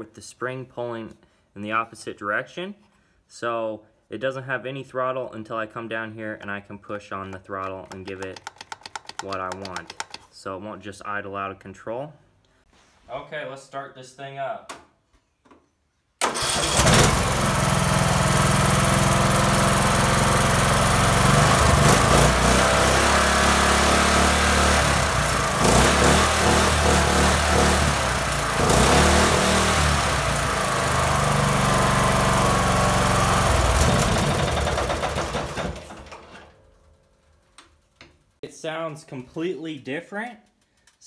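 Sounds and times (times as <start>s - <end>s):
riding mower engine revving: 16.2s - 36.3s.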